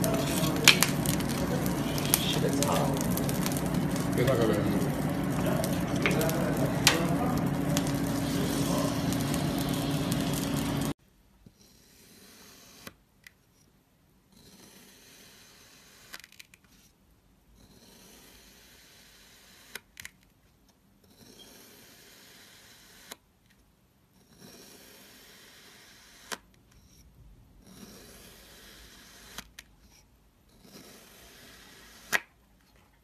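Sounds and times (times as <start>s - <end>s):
wood fire crackling: 0.0s - 11.0s.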